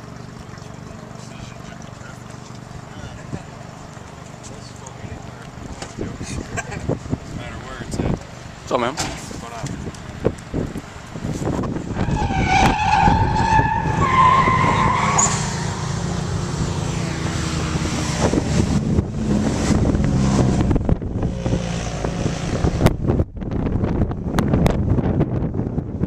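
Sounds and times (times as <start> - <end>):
car engine running hard: 0.9 - 25.9
car tires squealing: 11.9 - 16.1.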